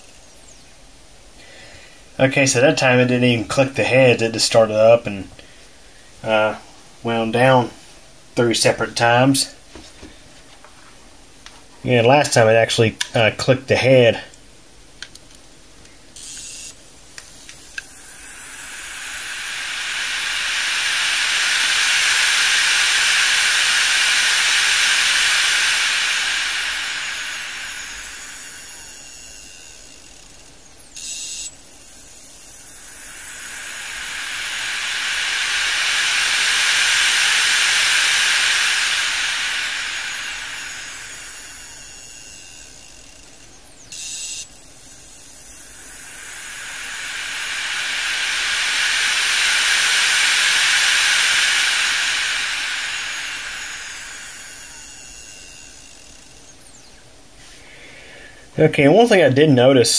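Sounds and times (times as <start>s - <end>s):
hard drive platters whooshing: 16.2s - 57.6s.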